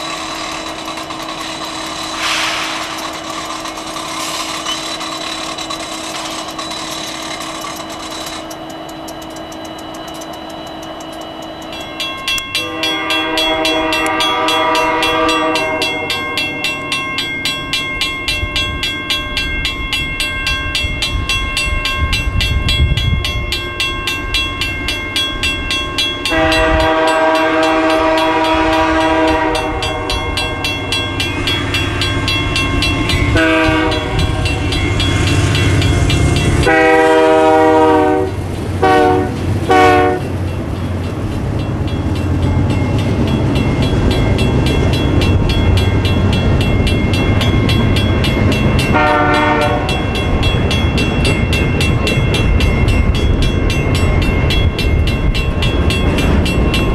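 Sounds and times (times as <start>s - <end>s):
diesel locomotives idling: 0.0s - 16.1s, 24.2s - 56.9s
low rumble of locomotives: 0.0s - 56.9s
train horn blast: 2.2s - 2.9s, 12.6s - 16.4s, 26.3s - 30.7s, 33.3s - 34.6s, 35.9s - 40.4s, 48.9s - 50.0s.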